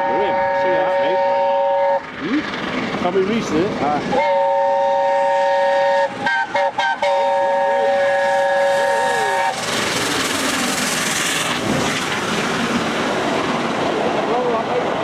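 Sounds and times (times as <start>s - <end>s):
steam locomotive whistle: 0.0s - 2.1s, 4.1s - 9.7s
rush of steam and exhaust: 0.0s - 15.0s.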